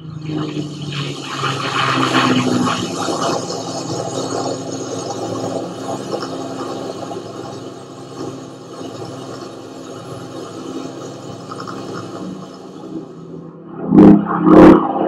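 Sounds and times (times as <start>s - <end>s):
aircraft engines droning: 0.0s - 15.0s.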